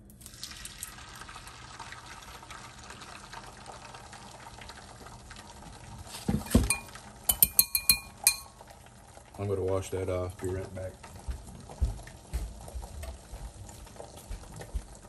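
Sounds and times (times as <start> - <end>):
eggs sizzling in a skillet: 0.0 - 15.0
dishes clinking: 6.3 - 8.6.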